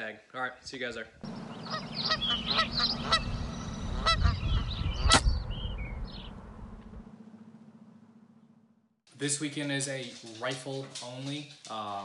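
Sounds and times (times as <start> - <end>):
geese honking: 1.3 - 5.2
high bird chirps: 1.3 - 6.4
low background rumble: 1.3 - 8.9.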